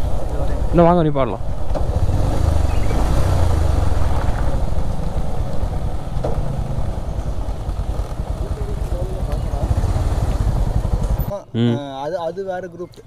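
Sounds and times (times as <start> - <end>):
motorcycle engine running: 0.0 - 11.7.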